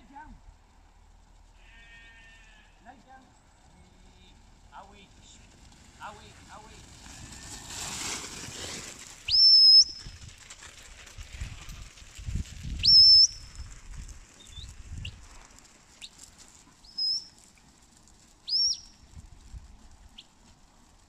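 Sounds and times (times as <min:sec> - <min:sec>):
shepherd's whistle commands: 0:09.3 - 0:10.0, 0:12.8 - 0:13.4, 0:16.9 - 0:17.3, 0:18.5 - 0:18.8.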